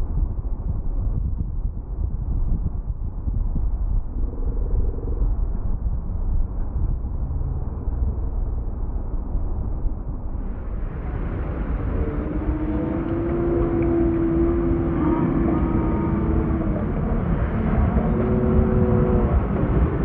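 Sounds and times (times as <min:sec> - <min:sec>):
heavy surf breaking: 0:10.4 - 0:20.0
jet ski engine droning: 0:10.5 - 0:20.0.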